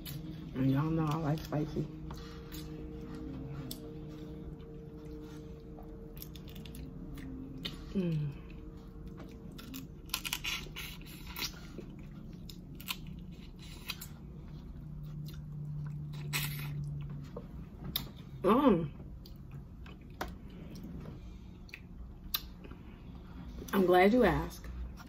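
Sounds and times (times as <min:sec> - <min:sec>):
person chewing crunchy food: 0:02.1 - 0:18.2.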